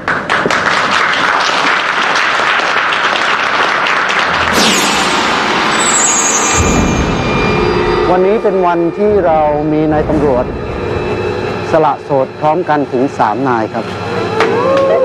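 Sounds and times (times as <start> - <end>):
crowd applauding: 0.0 - 4.6.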